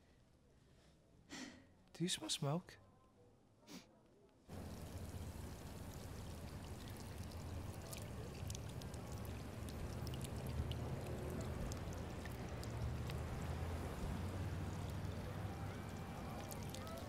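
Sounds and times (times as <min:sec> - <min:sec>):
fountain water splashing: 0:04.5 - 0:17.0
low steady rumble: 0:04.5 - 0:17.0.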